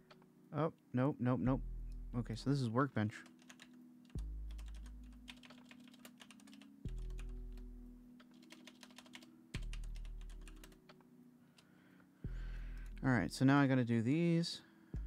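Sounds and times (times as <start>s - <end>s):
rapid typing on keyboard: 3.2s - 7.6s, 8.2s - 11.0s.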